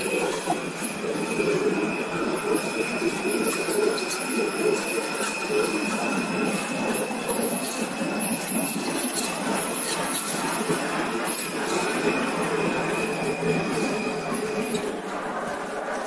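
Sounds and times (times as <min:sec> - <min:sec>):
high-pitched engine whine: 0:00.0 - 0:16.0.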